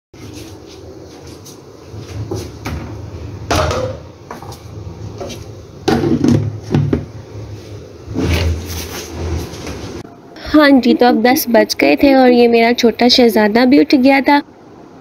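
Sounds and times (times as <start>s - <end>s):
low steady hum: 0.2s - 15.0s
dishes clattering on counter: 3.5s - 4.6s.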